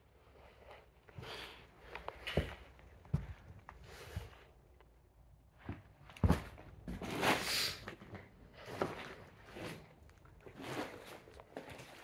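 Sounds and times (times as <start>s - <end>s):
footsteps crunching over debris: 5.6s - 12.0s.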